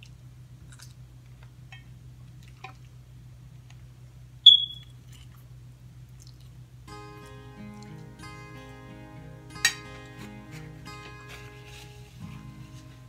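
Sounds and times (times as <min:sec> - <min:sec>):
loud high-pitched beep: 0:04.5 - 0:04.9.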